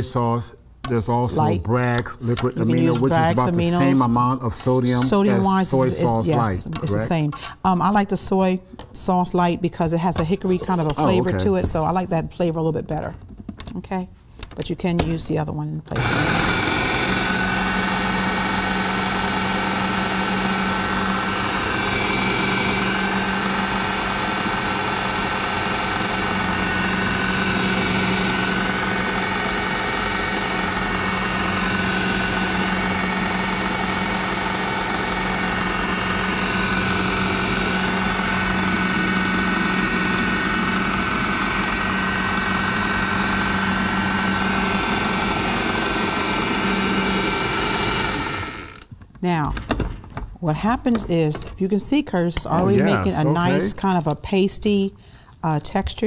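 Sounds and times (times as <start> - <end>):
food processor motor running: 11.0 - 11.6, 15.9 - 48.9, 52.6 - 53.7.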